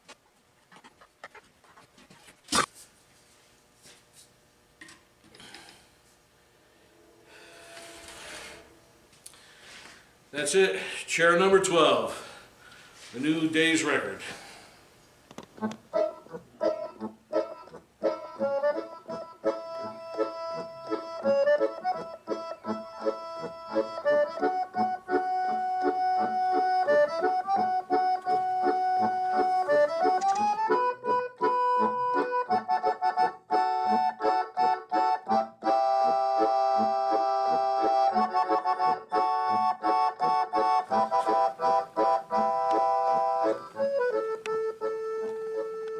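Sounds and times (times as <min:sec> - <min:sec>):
instrumental music with beat: 0:15.6 - 0:45.9.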